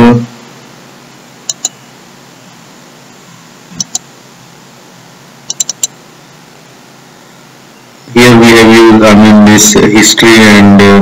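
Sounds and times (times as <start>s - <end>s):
faint microphone hiss: 0.0s - 11.0s
computer mouse clicking: 1.5s - 1.8s, 3.8s - 4.1s, 5.5s - 6.0s.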